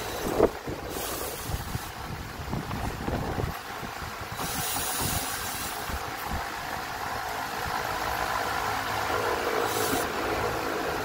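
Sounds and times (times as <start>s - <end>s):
cordless drill driving a screw: 0.0s - 1.9s, 4.4s - 5.9s, 9.6s - 10.1s.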